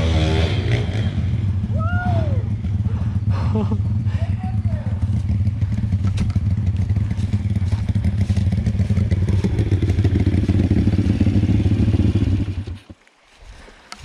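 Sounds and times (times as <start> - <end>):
small motorbike engine running: 2.4 - 13.0.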